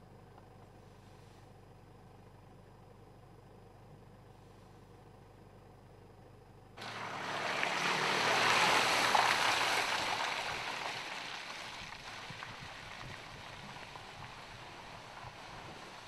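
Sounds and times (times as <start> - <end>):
tyres rolling over mud and stones: 6.8 - 16.0.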